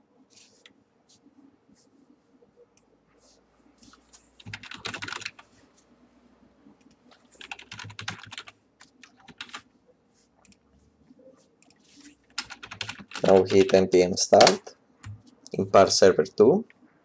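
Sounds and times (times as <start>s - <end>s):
computer keyboard typing: 4.4s - 5.4s, 6.8s - 9.6s, 11.6s - 13.8s.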